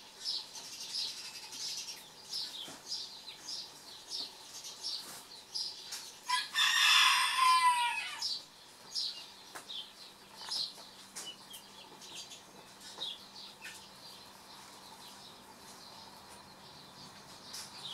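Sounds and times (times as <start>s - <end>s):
chicken calling: 6.3s - 8.4s.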